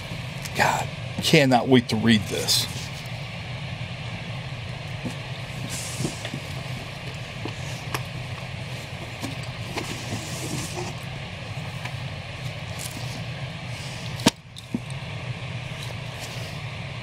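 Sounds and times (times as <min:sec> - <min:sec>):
steady low hum: 0:00.0 - 0:17.0
paper sliding and rustling: 0:09.7 - 0:11.0.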